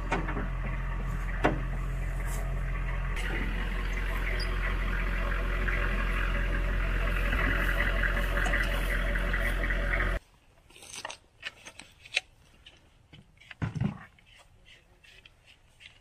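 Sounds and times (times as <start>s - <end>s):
engine idling: 0.0s - 10.2s.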